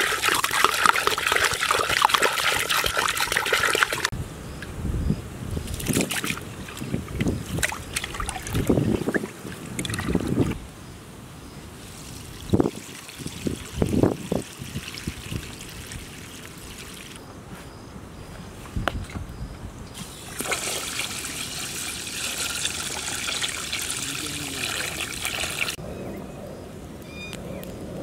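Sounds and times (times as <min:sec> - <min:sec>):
water pouring into metal bowl: 0:00.0 - 0:04.1, 0:20.1 - 0:25.8
water splashing from pot: 0:00.0 - 0:04.1, 0:20.0 - 0:25.8.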